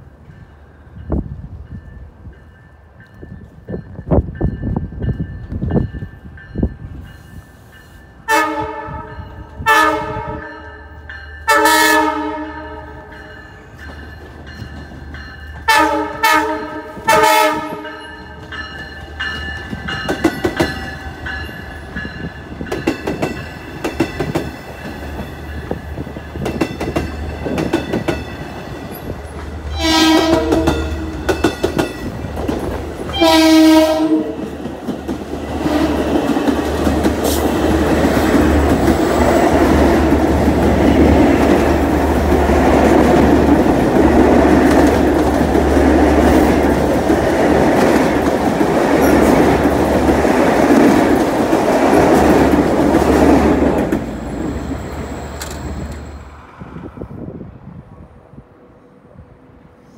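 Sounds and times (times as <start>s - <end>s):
train horn blasts: 8.2s - 10.8s, 11.5s - 13.3s, 15.6s - 18.4s, 29.7s - 31.4s, 33.1s - 34.5s.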